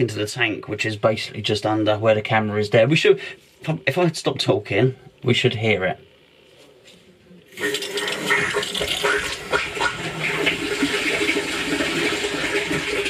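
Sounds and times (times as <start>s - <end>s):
water rushing through pipe: 7.6s - 13.0s.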